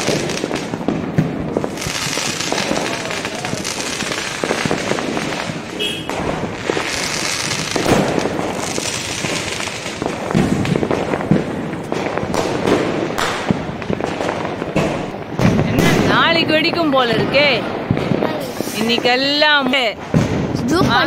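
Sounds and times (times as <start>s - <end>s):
fireworks bangs: 0.0s - 21.0s
fireworks crackling: 0.0s - 21.0s.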